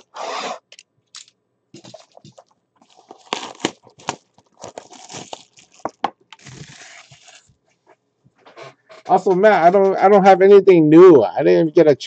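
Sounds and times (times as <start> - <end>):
plastic wrap tearing and crinkling: 1.8 - 7.5.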